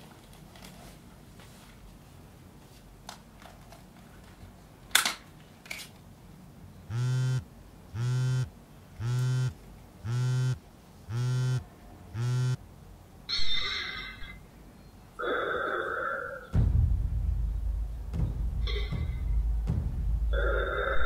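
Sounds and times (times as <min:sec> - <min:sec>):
buzzy electronic beeping: 0:06.9 - 0:07.4, 0:08.0 - 0:11.6, 0:12.2 - 0:12.6.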